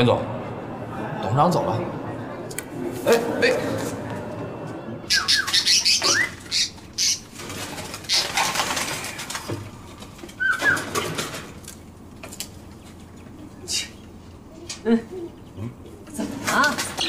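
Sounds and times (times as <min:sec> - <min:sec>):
birds chirping and twittering: 0:05.0 - 0:17.0
whistled bird calls: 0:05.1 - 0:07.2, 0:10.4 - 0:10.9.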